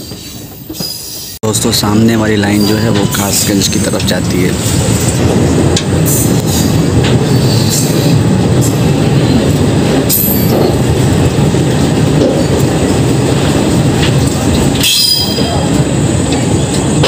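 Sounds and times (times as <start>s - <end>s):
train wheels rumbling on rail: 0.0s - 17.0s
high wheel squeal: 2.4s - 4.0s
wheels clicking over rail joints: 9.4s - 17.0s.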